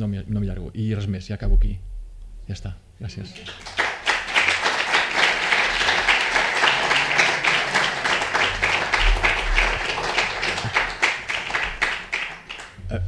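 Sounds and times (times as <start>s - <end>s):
audience applauding: 3.2s - 12.8s.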